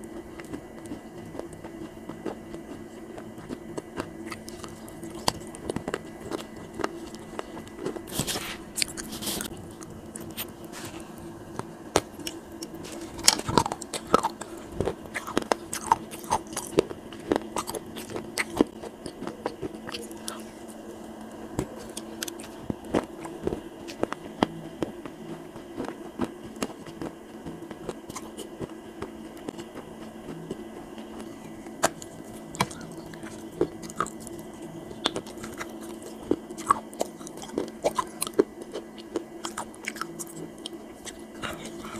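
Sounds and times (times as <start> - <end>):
steady low hum: 0.0 - 41.9.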